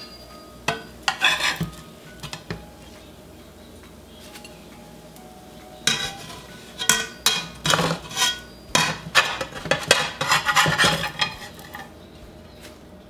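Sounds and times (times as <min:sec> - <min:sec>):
spatula scraping a frying pan: 0:00.7 - 0:02.5, 0:05.8 - 0:12.0.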